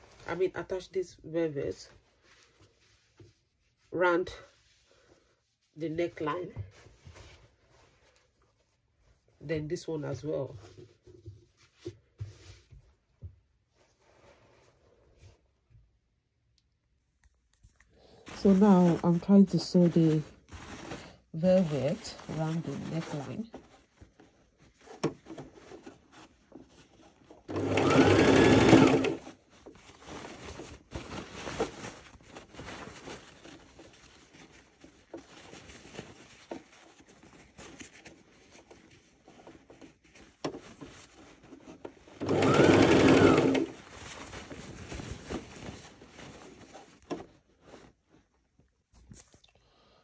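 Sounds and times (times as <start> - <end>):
sewing machine stitching: 27.5 - 29.3, 42.2 - 43.8.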